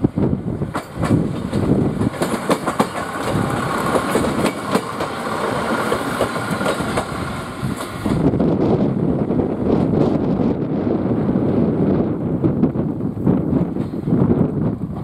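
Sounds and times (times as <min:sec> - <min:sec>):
railcar rumble: 0:00.0 - 0:15.0
wheels clicking over rail joints: 0:00.6 - 0:08.3.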